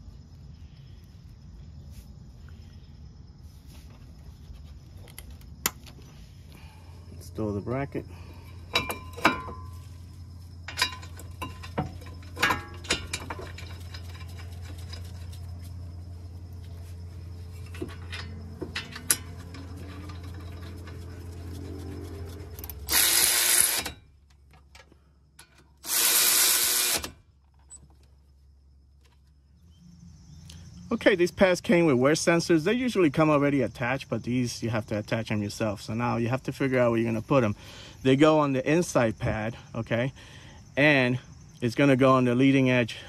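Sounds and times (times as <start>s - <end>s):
metal clinks and knocks: 8.4s - 16.0s, 16.6s - 25.8s
cordless power tool tightening bolts: 22.6s - 24.0s, 25.8s - 27.2s.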